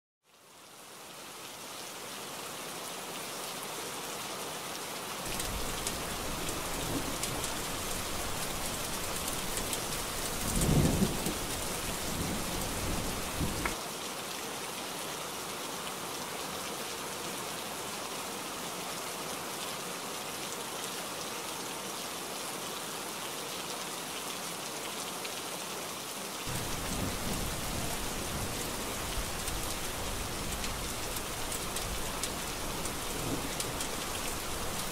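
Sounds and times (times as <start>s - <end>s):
heavy rain: 0.3s - 34.9s
thunder rumbling: 5.3s - 13.8s, 26.5s - 34.9s.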